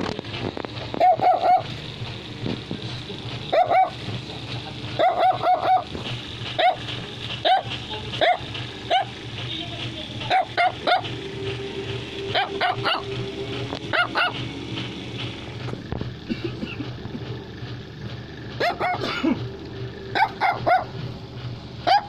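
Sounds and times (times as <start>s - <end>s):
low hum: 0.0s - 22.0s
dog barking high-pitched yaps: 1.0s - 1.7s, 3.5s - 4.0s, 5.0s - 5.9s, 6.6s - 6.8s, 7.4s - 9.1s, 10.3s - 11.0s, 12.4s - 13.0s, 13.9s - 14.4s, 18.6s - 19.0s, 20.1s - 20.9s.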